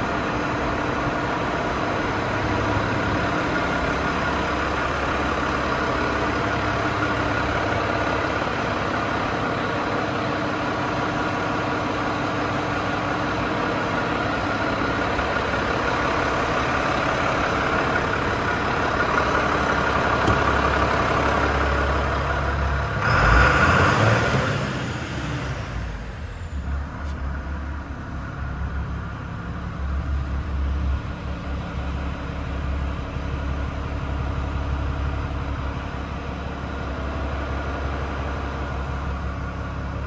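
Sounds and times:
diesel engine idling: 0.0s - 40.0s.

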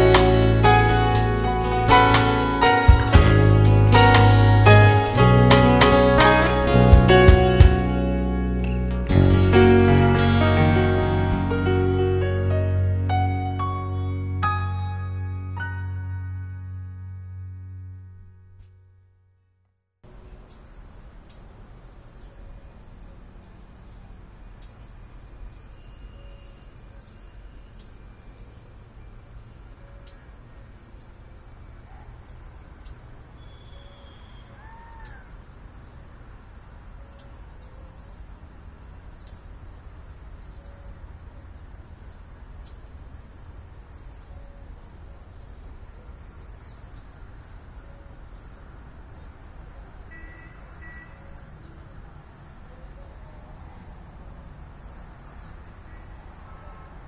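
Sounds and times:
small birds chirping: 20.1s - 57.0s
arched bird call: 33.4s - 35.4s, 49.9s - 53.2s.

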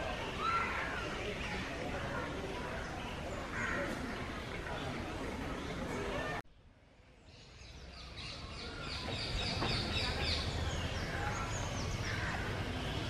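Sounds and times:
birds chirping: 7.2s - 13.0s.

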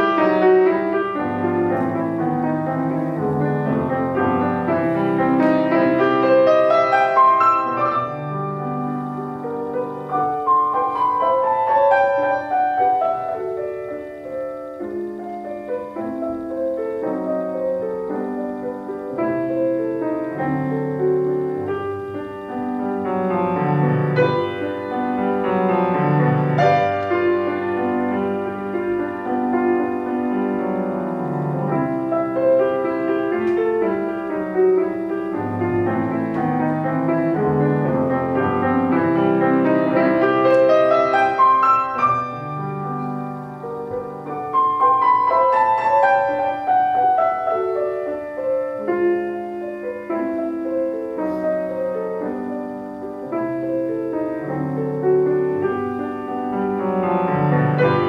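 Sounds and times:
solo classical piano piece: 0.0s - 58.0s.

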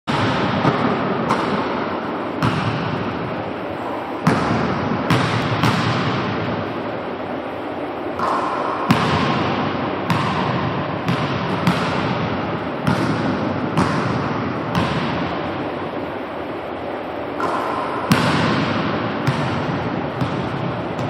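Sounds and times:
basketball bouncing on hardwood floor: 2.4s - 2.9s, 4.2s - 6.2s, 8.9s - 9.5s, 10.1s - 15.2s, 17.4s - 21.0s.

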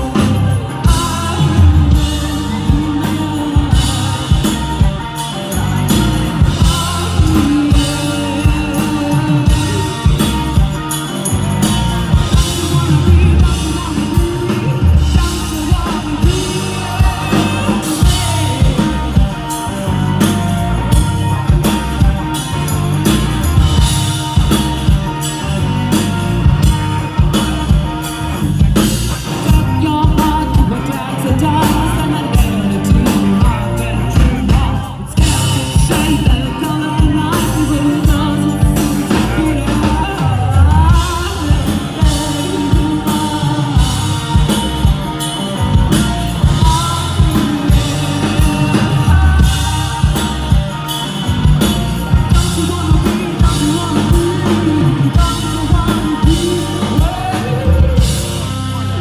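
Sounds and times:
woman singing: 0.0s - 11.0s, 12.2s - 19.6s, 29.5s - 44.8s, 52.1s - 58.4s
drum kit beat: 0.0s - 59.0s
rock band playing: 0.0s - 59.0s.

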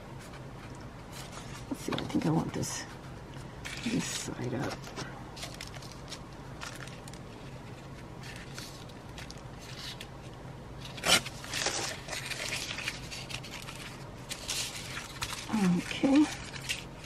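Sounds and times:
paper rustling: 0.2s - 17.0s
paper ripping: 10.8s - 17.0s.

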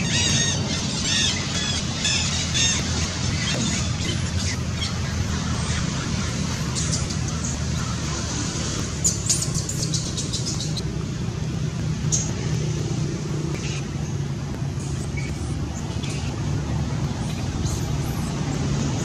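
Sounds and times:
infant monkey squealing: 0.0s - 7.7s.

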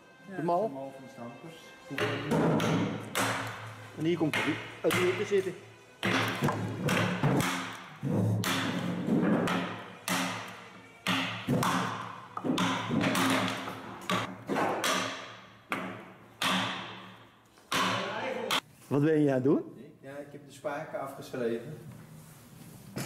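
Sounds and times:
mallet striking wood chisel: 1.9s - 18.6s.

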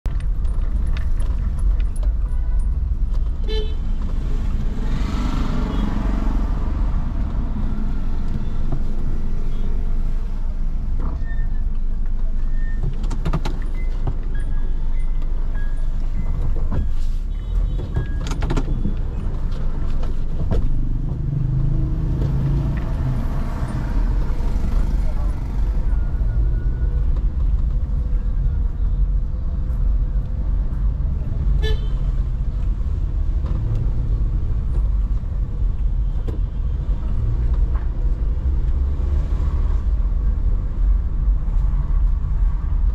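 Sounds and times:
car horn toots: 31.6s - 32.0s.

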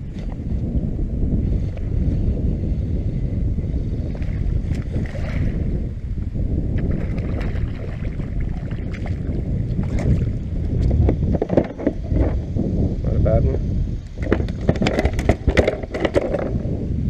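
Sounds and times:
wind rumbling on microphone: 0.0s - 17.0s
water sloshing around kayak: 4.1s - 5.6s, 6.8s - 12.4s.

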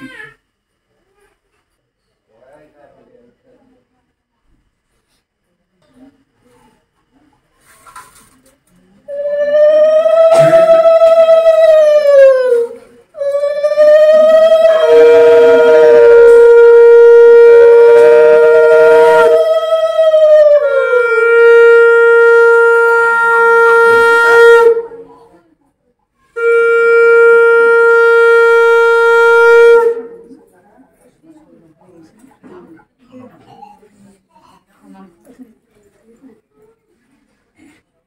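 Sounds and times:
conch shells blown in long blasts: 9.1s - 25.2s, 26.3s - 30.4s.

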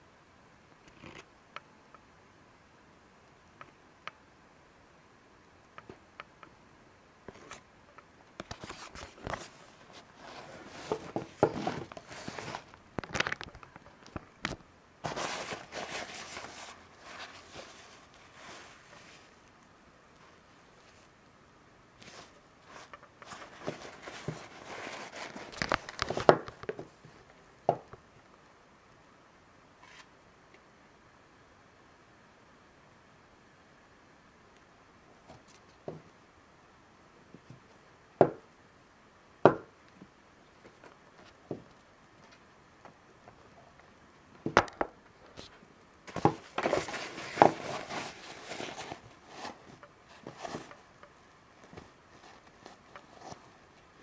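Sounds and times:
nylon pouch rustling: 15.0s - 19.4s, 22.0s - 26.3s, 46.1s - 50.9s.

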